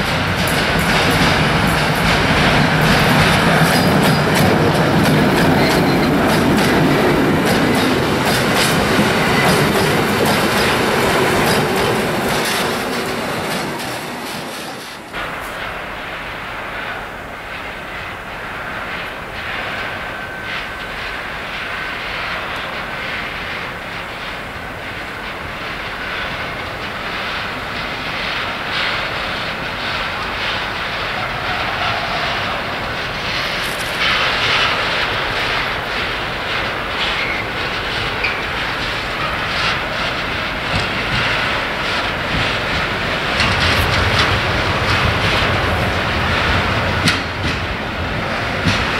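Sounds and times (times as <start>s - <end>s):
freight wagons rumbling: 0.0s - 16.2s, 30.4s - 48.9s
diesel locomotive engine drone: 0.0s - 48.9s.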